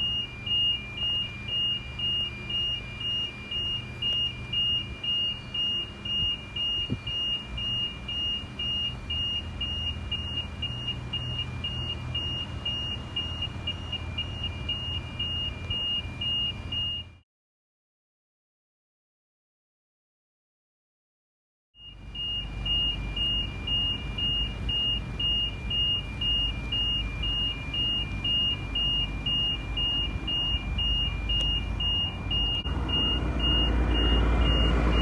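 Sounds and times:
warning bell beeping: 21.8 - 35.0.

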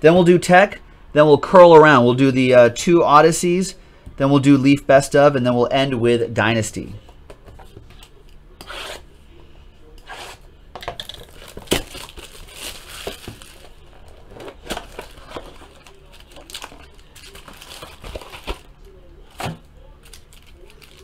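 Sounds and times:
foil packs rustling: 11.0 - 21.0.

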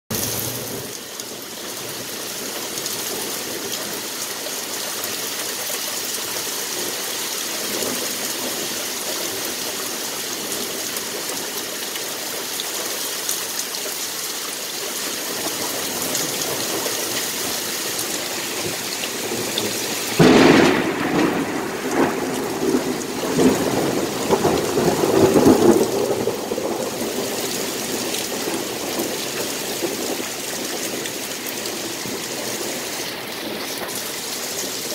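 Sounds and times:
rain falling on leafy trees: 0.1 - 34.9
thunder rumbling: 15.3 - 34.9.

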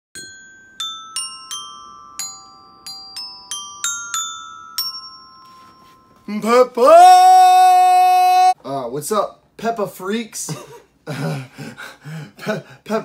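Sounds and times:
glockenspiel melody: 0.2 - 6.6.

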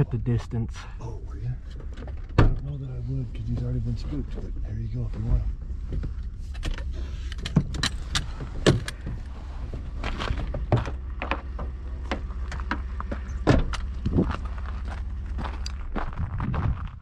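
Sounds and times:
steady low hum: 0.0 - 17.0
truck door opening: 1.8 - 2.7, 6.0 - 14.4.

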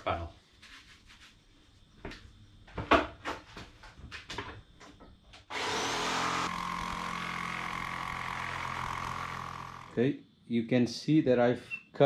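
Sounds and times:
power saw cutting plywood: 5.5 - 10.0.

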